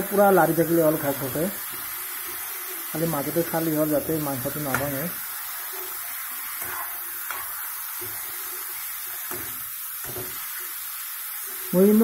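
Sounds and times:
frying sizzle: 0.0s - 12.0s
spatula scraping metal pan: 4.6s - 10.8s.

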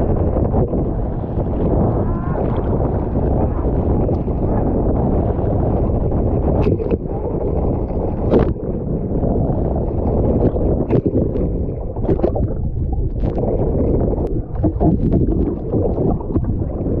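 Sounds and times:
water rushing: 0.0s - 5.5s, 9.9s - 17.0s
muffled underwater gurgling: 0.0s - 17.0s
wind buffeting microphone: 0.0s - 17.0s
water splashes: 9.6s - 17.0s.

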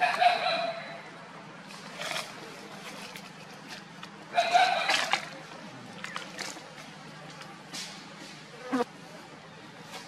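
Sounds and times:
macaque calling: 4.3s - 5.2s.

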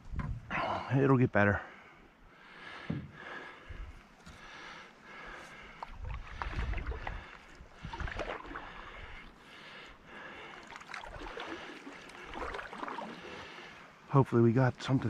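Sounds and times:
low wind rumble on microphone: 0.0s - 0.6s, 5.9s - 9.2s
paddle swishing and splashing water: 5.5s - 14.1s.

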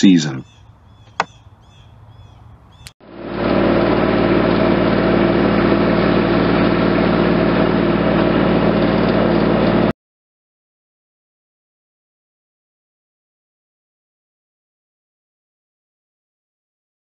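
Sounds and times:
skid-steer engine running: 2.6s - 9.9s.

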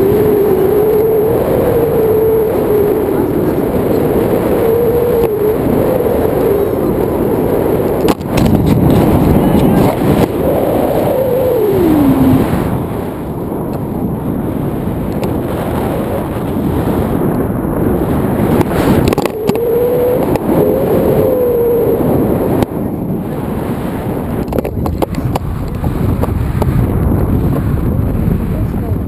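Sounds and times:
faint wavering tone: 0.0s - 8.0s, 9.2s - 12.7s, 19.1s - 22.6s
wind noise on microphone: 0.0s - 29.0s.

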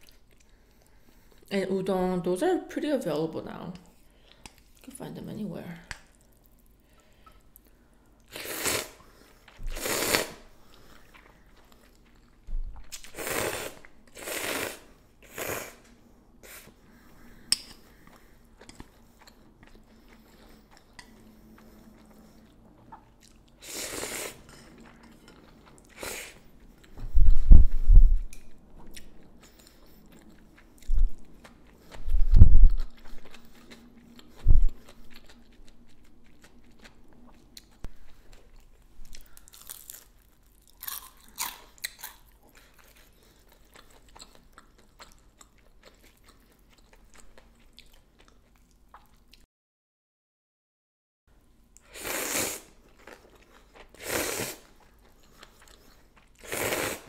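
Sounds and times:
person slurping noodles: 8.3s - 9.0s, 9.7s - 10.5s, 12.9s - 15.8s, 23.6s - 24.5s, 51.9s - 52.8s, 54.0s - 54.7s, 56.4s - 57.0s
chewing: 10.6s - 13.2s, 17.5s - 23.6s, 24.3s - 27.0s, 32.7s - 49.4s, 54.6s - 56.5s.

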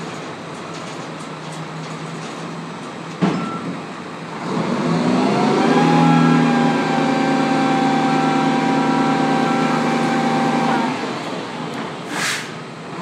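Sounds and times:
diesel truck engine revving: 4.1s - 13.0s.

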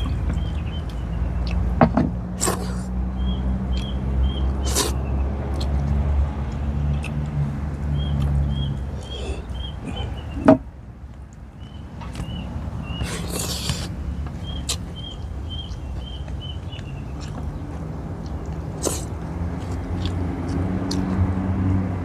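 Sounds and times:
bird chirps: 0.0s - 1.7s, 3.1s - 5.3s, 7.9s - 10.6s, 11.5s - 18.4s
person chewing with mouth full: 0.0s - 2.9s, 3.7s - 10.4s, 12.1s - 21.3s
low engine hum: 0.0s - 22.0s
dull thump: 1.8s - 2.2s.

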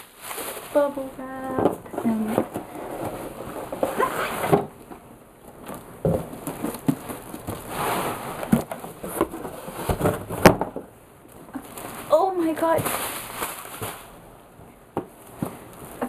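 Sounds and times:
bubble wrap and paper rustling: 0.0s - 4.8s, 5.5s - 10.6s, 11.3s - 14.2s, 15.1s - 16.0s
cardboard knocks and bumps: 5.6s - 7.7s, 8.3s - 10.9s.

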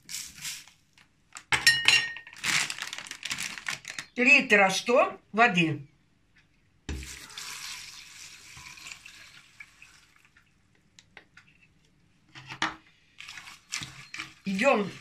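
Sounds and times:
water dripping: 6.9s - 11.4s
water pouring into a metal pot: 7.0s - 10.4s, 13.2s - 15.0s.

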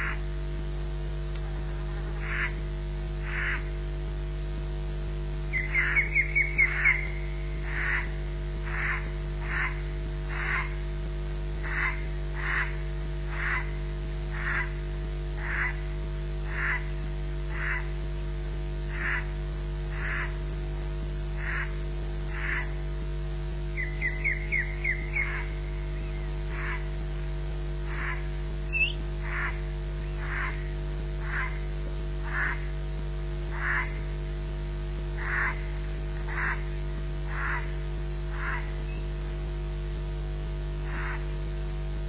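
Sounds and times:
electrical mains hum: 0.0s - 42.0s
bird alarm chirps: 5.5s - 7.4s, 23.8s - 26.3s, 28.7s - 29.0s.

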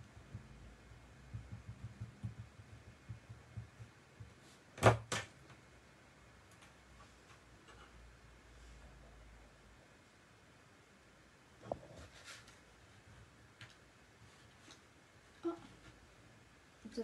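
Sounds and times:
soft low thuds: 0.0s - 4.4s.

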